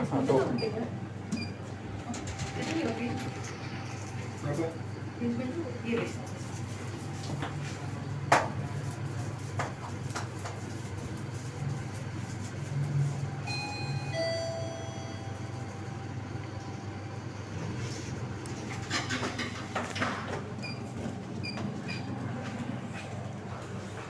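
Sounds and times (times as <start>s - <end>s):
elevator hum: 0.0s - 8.9s, 12.6s - 24.0s
two-note elevator chime: 13.4s - 16.2s.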